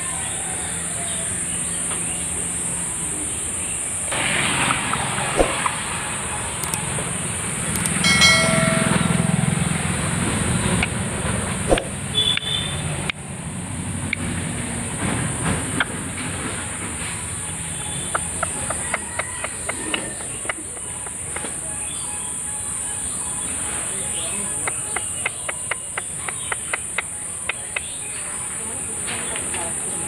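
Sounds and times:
high-pitched drone: 5.7s - 10.8s.

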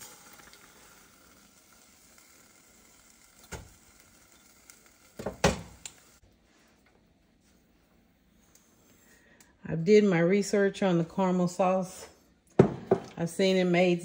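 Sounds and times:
sugar pouring into a pot: 0.0s - 6.2s.

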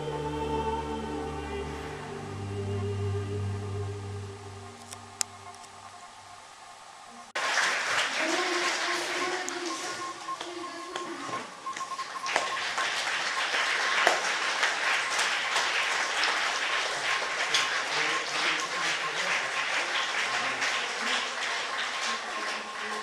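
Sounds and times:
audience applauding: 7.4s - 23.0s.

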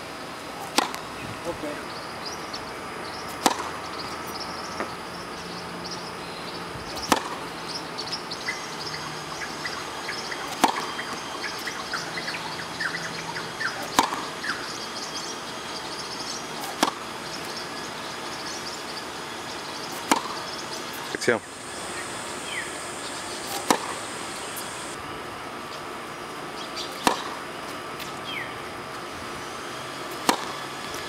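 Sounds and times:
tennis racket hitting ball: 0.6s - 1.0s, 3.3s - 3.8s, 6.9s - 7.4s, 10.4s - 11.8s, 13.8s - 14.3s, 16.6s - 17.0s, 19.9s - 20.4s, 23.3s - 24.0s, 26.9s - 27.4s, 30.1s - 31.0s
faint birds chirping: 1.0s - 25.0s.

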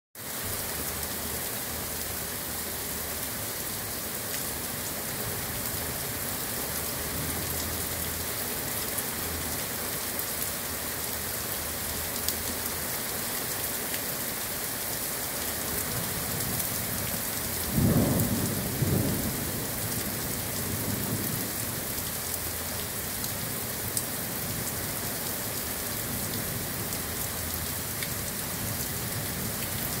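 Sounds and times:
heavy rain falling: 0.2s - 30.0s
low rumble of thunder: 17.5s - 21.9s.

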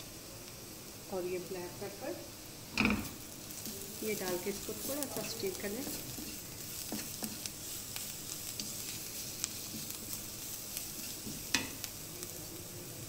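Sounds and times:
onions sizzling in oil: 0.0s - 13.0s
wooden spatula stirring: 3.0s - 12.6s.

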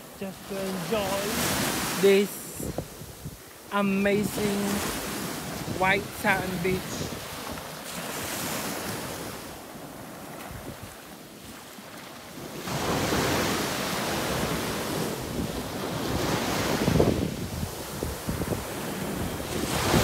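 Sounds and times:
small waves breaking on beach: 0.0s - 20.0s
wind rumbling on microphone: 2.0s - 3.5s, 10.3s - 11.1s, 14.2s - 20.0s.

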